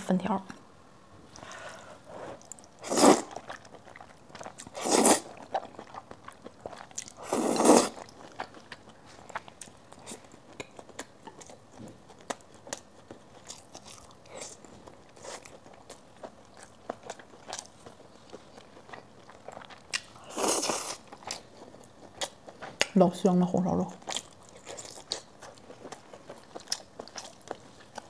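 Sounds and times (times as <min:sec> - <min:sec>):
slurping noodles: 0:02.1 - 0:03.4, 0:04.7 - 0:05.4, 0:07.2 - 0:08.0
chewing rice with wet clicks: 0:02.4 - 0:07.2, 0:07.9 - 0:23.0, 0:24.0 - 0:28.0.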